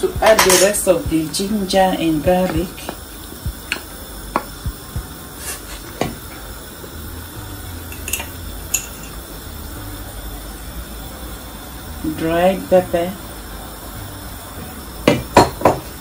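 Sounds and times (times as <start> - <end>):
low hum: 6.2 - 16.0.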